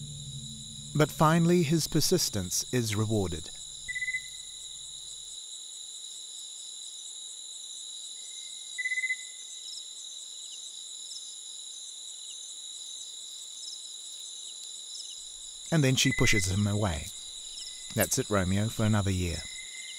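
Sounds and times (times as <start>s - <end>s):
crickets and insects shrilling: 0.0s - 5.2s
loud insect trill: 0.0s - 19.9s.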